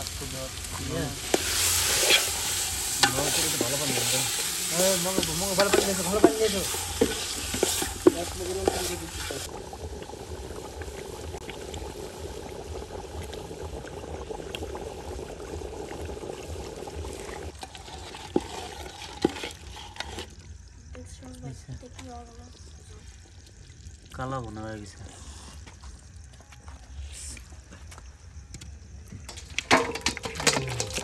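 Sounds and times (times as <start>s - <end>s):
rice sizzling: 0.0s - 26.3s, 29.2s - 31.0s
utensil scraping metal pot: 1.2s - 9.5s, 17.2s - 20.5s, 29.7s - 31.0s.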